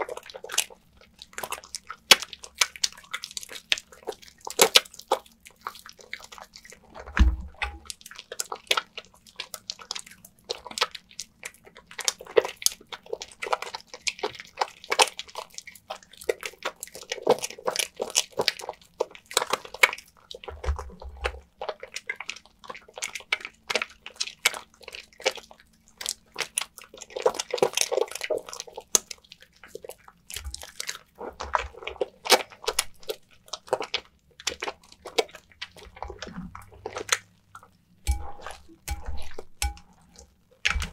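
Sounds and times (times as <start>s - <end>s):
soap lather squishing: 0.0s - 40.9s
soft low bumps: 7.0s - 7.9s.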